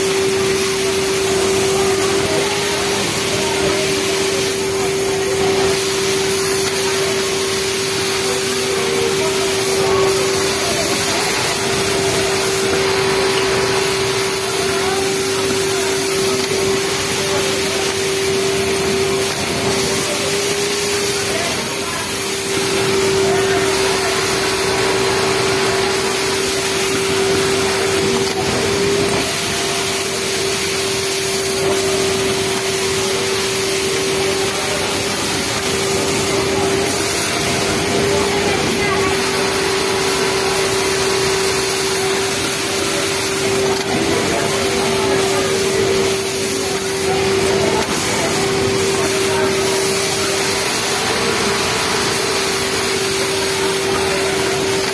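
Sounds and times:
other sewing machines whirring: 0.0s - 54.9s
sewing machine running: 0.0s - 54.9s
steady hum: 0.0s - 54.9s.

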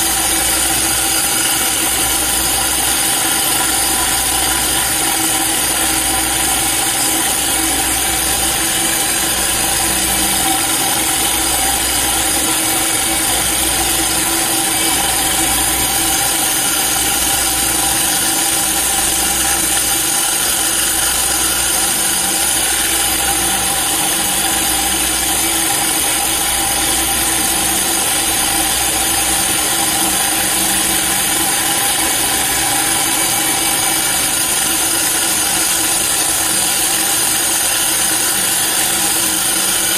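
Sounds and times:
core drill motor whine: 0.0s - 39.9s
drill bit grinding stone: 0.0s - 39.9s.

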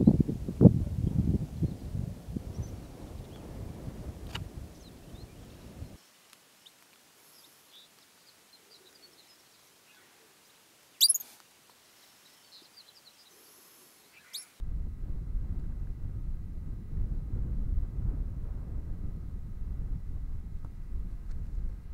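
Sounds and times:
wind noise rumble: 0.0s - 6.0s, 14.6s - 21.9s
faint high chirps: 11.0s - 11.4s, 14.1s - 14.6s
pika calls: 11.0s - 11.4s, 14.1s - 14.6s.

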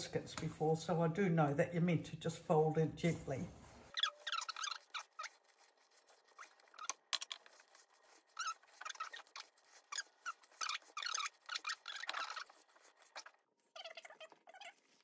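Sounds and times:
spatula strokes in a metal bowl: 3.2s - 15.0s.

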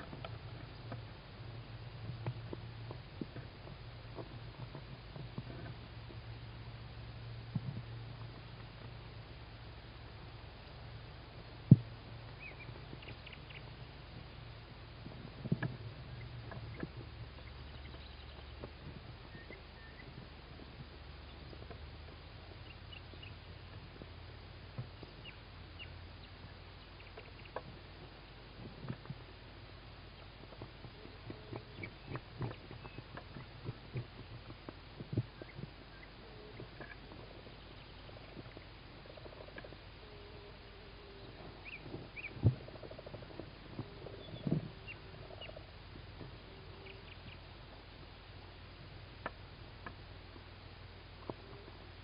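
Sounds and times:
electrical hum and hiss: 0.0s - 52.0s
faint high chirps: 12.2s - 14.6s, 15.7s - 23.7s
owl chicks chirping: 12.2s - 14.6s, 15.6s - 23.8s, 24.8s - 27.8s, 30.0s - 47.5s.

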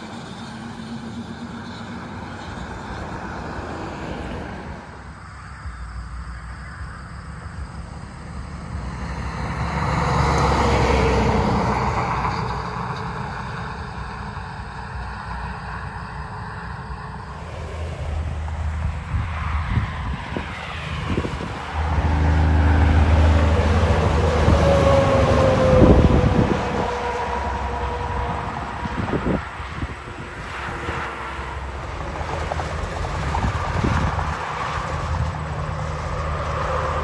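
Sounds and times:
trucks driving by: 0.0s - 37.0s.

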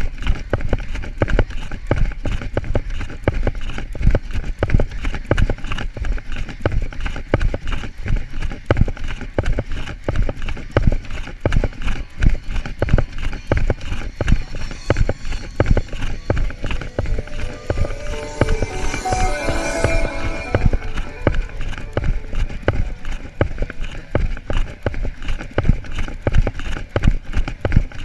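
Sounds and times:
running footfalls: 0.0s - 18.6s.

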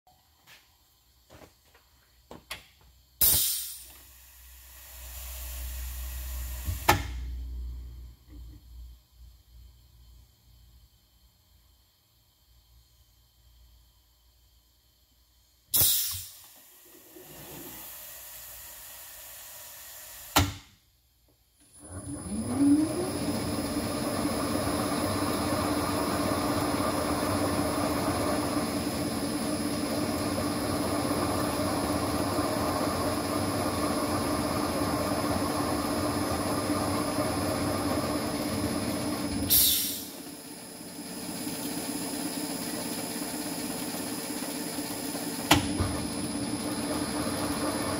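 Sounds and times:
air hiss: 3.2s - 7.0s, 15.7s - 20.4s, 39.5s - 40.2s.

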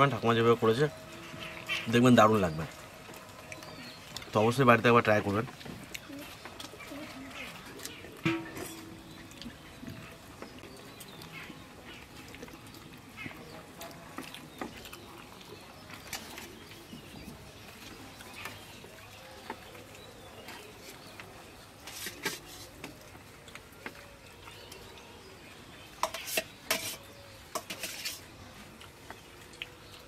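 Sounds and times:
dishes clattering: 8.2s - 9.2s, 26.0s - 28.2s.

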